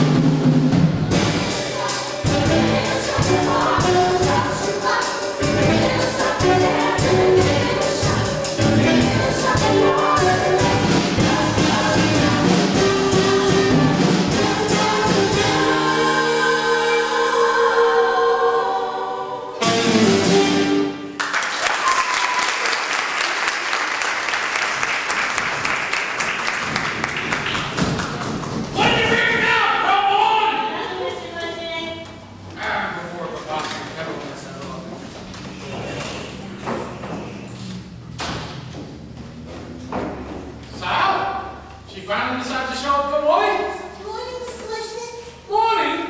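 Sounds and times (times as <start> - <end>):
live band playing: 0.0 - 18.3, 19.6 - 21.2
chorus singing: 1.1 - 21.1
audience applause: 21.2 - 28.6.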